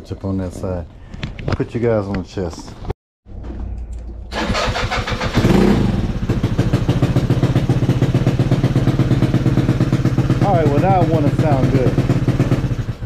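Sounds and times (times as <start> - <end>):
electric starter cranking: 4.3 - 6.2
scooter engine idling: 4.3 - 13.0.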